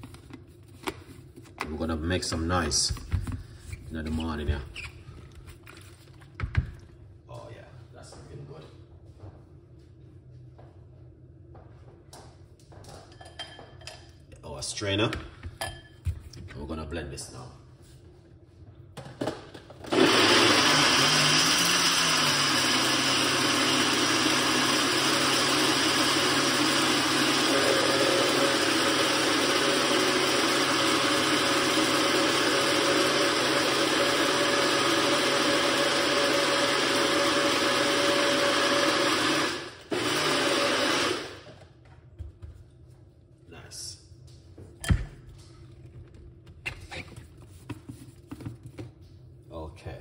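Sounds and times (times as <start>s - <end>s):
blender running: 19.8s - 41.6s.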